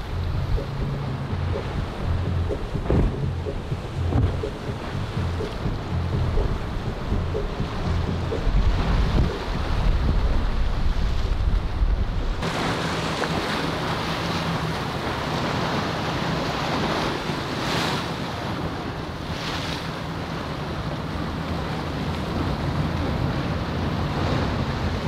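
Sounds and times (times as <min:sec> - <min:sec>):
wind buffeting microphone: 0:00.0 - 0:17.6
boat engine drone: 0:00.0 - 0:25.0
waves rushing: 0:00.0 - 0:25.0.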